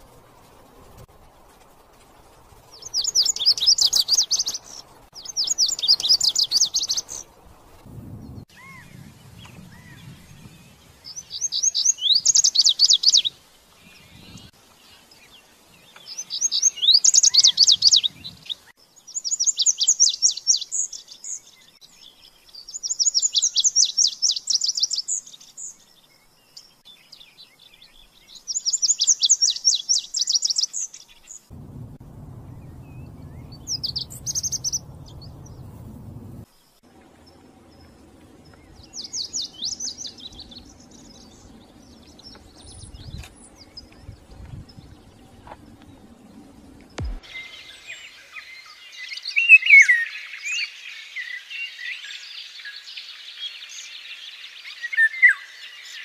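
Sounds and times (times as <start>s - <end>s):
bunting singing: 31.5s - 49.3s.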